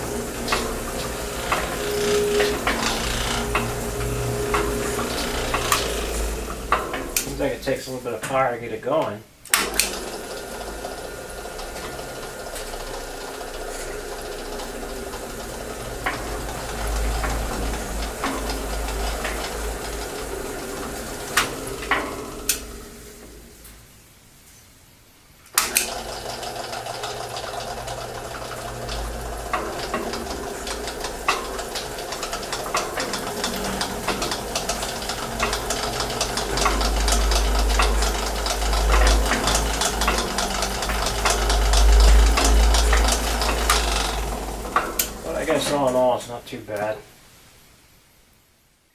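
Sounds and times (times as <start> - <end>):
cement mixer motor clattering: 0.0 - 8.5, 9.5 - 23.7, 25.5 - 46.2.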